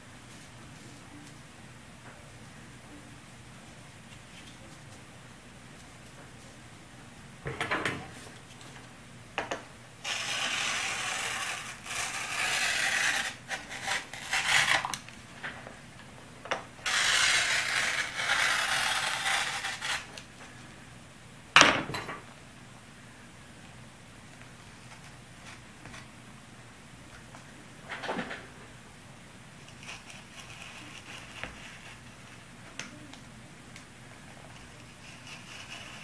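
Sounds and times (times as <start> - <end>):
rotary cutter cutting cloth: 10.0 - 15.0, 16.9 - 20.1.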